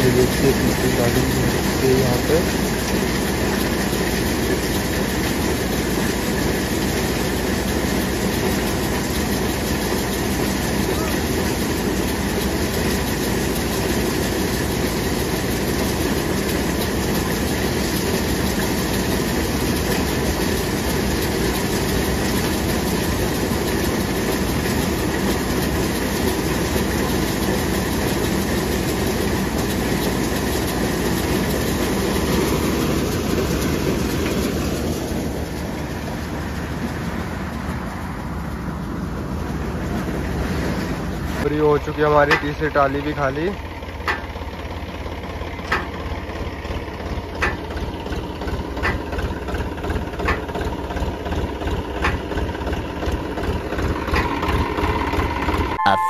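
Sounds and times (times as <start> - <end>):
thresher mechanical noise: 0.0 - 36.4, 40.2 - 44.3
tractor engine running: 0.0 - 56.0.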